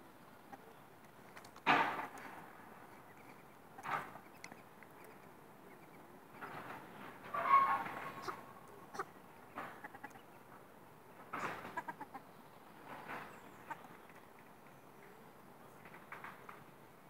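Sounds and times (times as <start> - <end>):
ducks calling: 7.3 - 10.5, 11.4 - 12.3.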